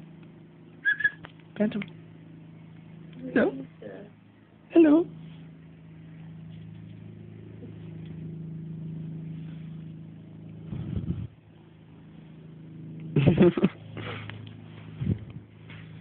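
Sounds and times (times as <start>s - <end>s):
kitten purring: 10.5s - 11.4s.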